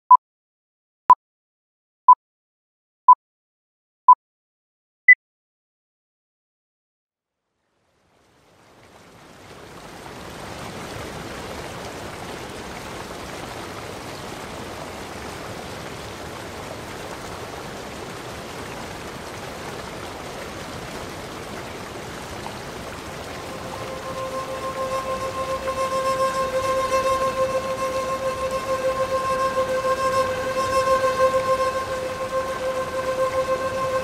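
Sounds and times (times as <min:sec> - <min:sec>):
running water rushing: 0:07.8 - 0:34.0
music with long held tones: 0:23.3 - 0:34.0.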